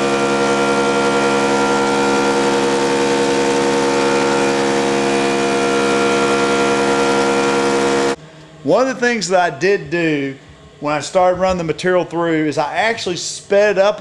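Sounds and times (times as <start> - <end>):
planer machine hum: 0.0 - 8.2.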